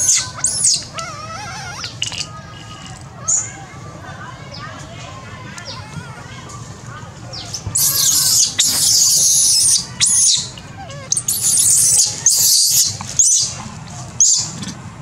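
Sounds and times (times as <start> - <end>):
baby monkey screaming: 0.0 - 2.4, 7.4 - 13.6.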